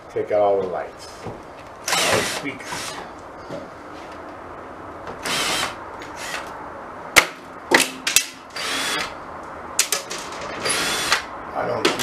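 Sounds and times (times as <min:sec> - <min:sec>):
cordless drill whirring: 0:01.8 - 0:03.0, 0:05.2 - 0:06.4, 0:08.6 - 0:09.1, 0:10.6 - 0:11.3.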